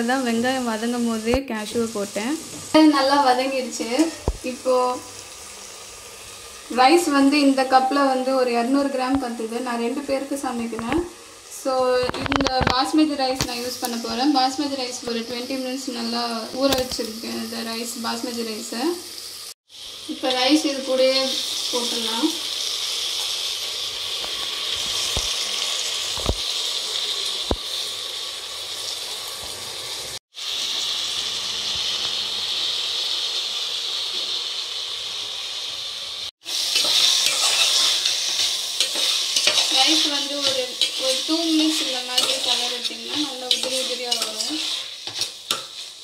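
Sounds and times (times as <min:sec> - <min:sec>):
rice sizzling in oil: 0:00.0 - 0:46.0
spoon scraping a steel pot: 0:36.8 - 0:46.0.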